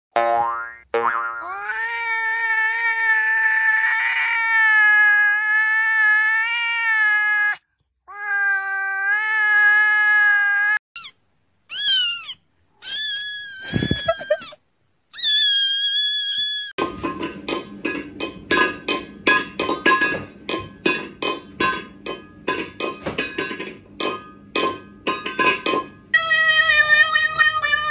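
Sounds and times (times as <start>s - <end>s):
cat meowing: 1.4s - 13.6s.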